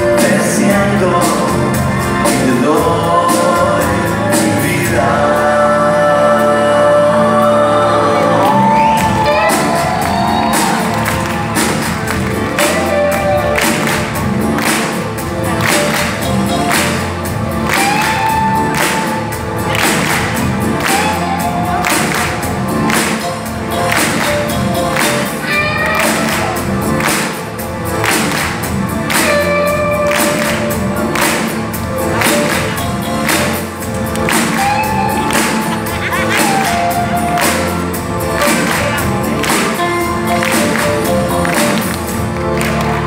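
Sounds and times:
drums keeping steady beat: 0.0s - 5.9s, 8.4s - 43.0s
lead vocal singing: 0.0s - 11.4s
live rock band playing: 0.0s - 43.0s.

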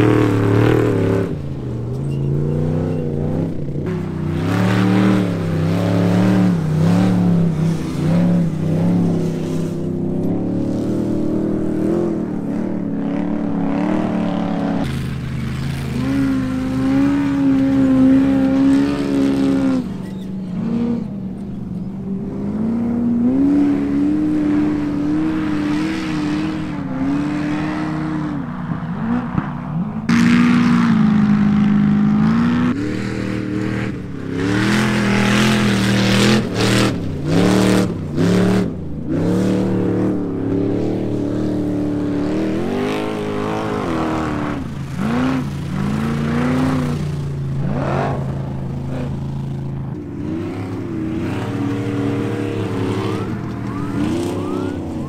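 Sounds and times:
off-road vehicle engines revving: 0.0s - 55.0s.

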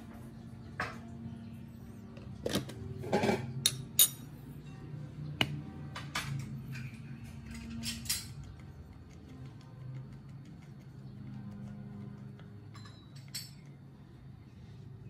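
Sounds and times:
metal spoon clinking ceramic bowl: 3.6s - 4.8s, 12.6s - 13.8s.

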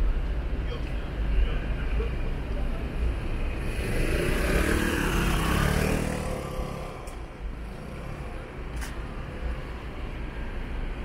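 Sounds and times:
city traffic noise: 0.0s - 11.0s
vehicle driving by: 3.6s - 9.3s.

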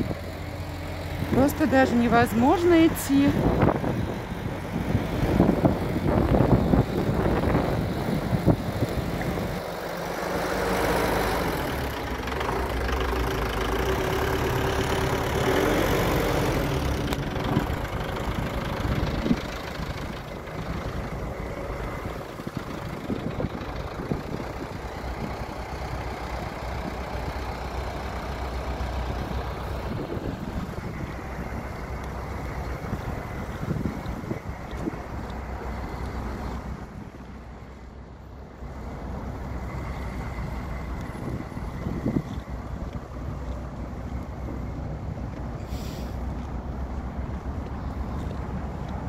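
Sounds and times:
road traffic: 0.0s - 49.0s
steady vehicle hum: 0.0s - 49.0s
wind buffeting microphone: 1.1s - 9.7s, 16.6s - 26.1s, 28.9s - 35.8s, 40.9s - 43.5s.

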